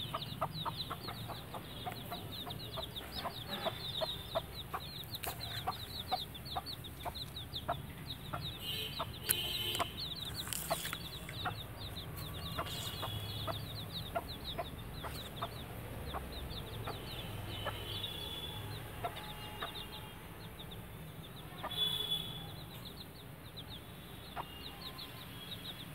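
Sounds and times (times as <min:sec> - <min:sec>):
hen clucking: 0:00.0 - 0:17.9, 0:18.8 - 0:20.0
chicks peeping: 0:00.0 - 0:25.9.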